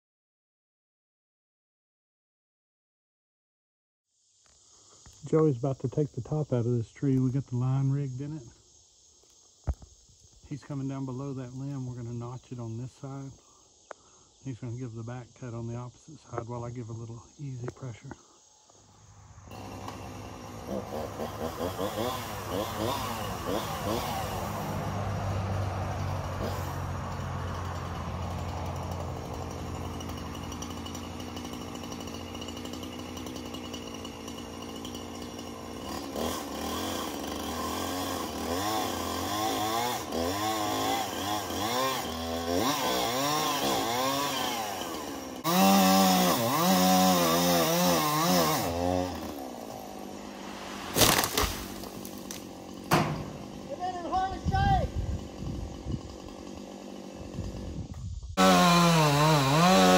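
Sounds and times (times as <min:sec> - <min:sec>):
chainsaw revving: 0:19.5 - 0:59.9
sharp knocks: 0:52.9 - 0:53.4.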